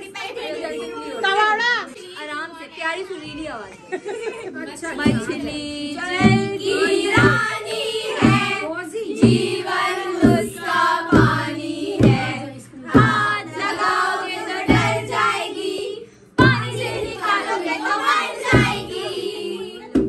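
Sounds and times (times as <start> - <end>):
women singing a folk song: 4.3 - 20.0
barrel drum bass strokes: 5.0 - 15.6, 16.4 - 19.1.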